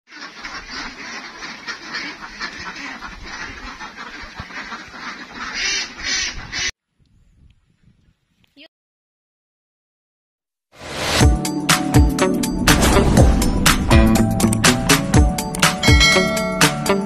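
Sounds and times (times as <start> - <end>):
flock of ducks quacking: 0.1 - 6.7.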